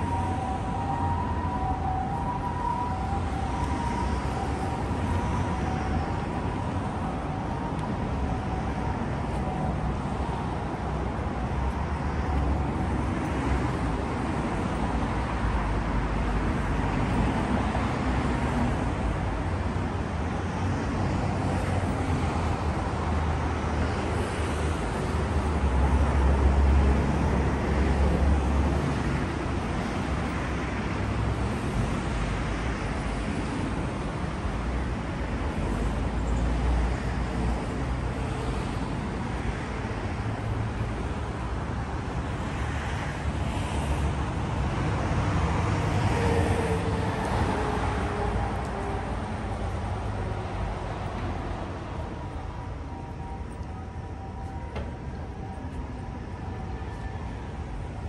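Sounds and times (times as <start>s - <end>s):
two-tone siren: 0.0s - 10.4s, 51.8s - 58.0s
cars passing: 0.0s - 58.0s.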